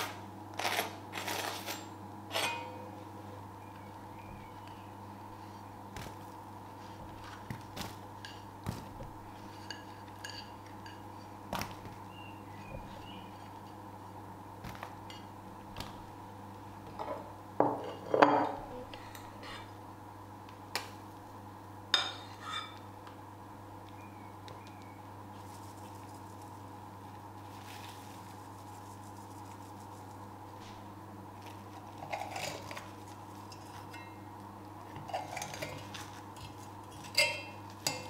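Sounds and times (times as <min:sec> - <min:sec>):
steady low hum: 0:00.0 - 0:38.0
utensils and dishes clinking: 0:01.2 - 0:02.9, 0:09.5 - 0:11.0, 0:35.0 - 0:38.0.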